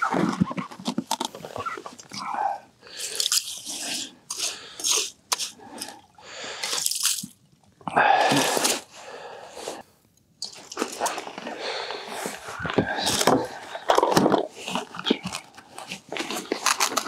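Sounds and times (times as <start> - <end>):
wet crunching ice scoops: 6.6 - 7.4.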